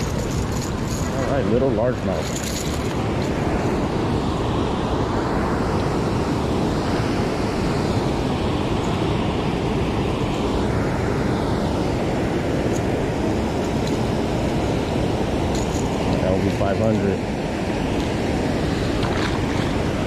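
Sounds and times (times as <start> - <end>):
water at shore: 0.0 - 20.0
wind: 0.0 - 20.0.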